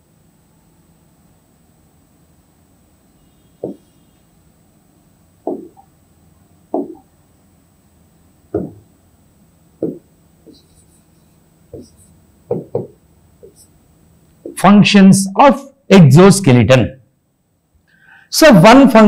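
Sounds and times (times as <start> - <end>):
stylus tapping on touchscreen: 3.6 - 3.9, 5.4 - 5.9, 6.7 - 7.1, 8.5 - 8.8, 9.8 - 10.9, 11.7 - 13.6.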